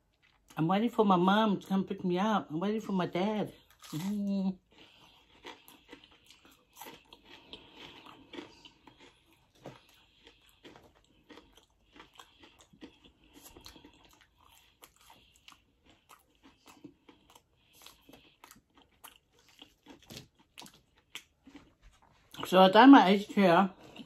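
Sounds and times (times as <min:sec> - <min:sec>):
chewing crunchy fried food: 0:00.0 - 0:02.0, 0:02.6 - 0:24.0.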